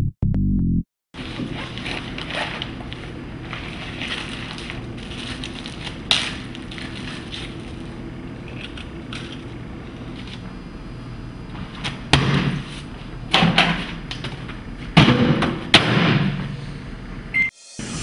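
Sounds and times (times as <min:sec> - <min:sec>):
steady low hum: 0:01.2 - 0:18.0
plastic wrapper crackling: 0:03.7 - 0:07.8.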